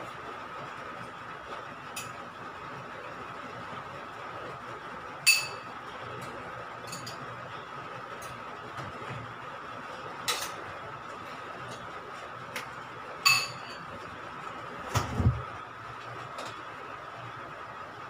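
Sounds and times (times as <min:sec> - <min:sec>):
dish clinking: 0:13.3 - 0:13.8.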